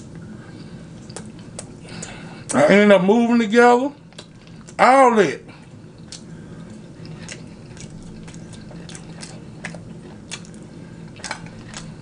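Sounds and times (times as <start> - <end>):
low steady hum: 0.0 - 12.0
wet chewing clicks: 1.0 - 2.2, 4.0 - 4.8, 5.9 - 12.0.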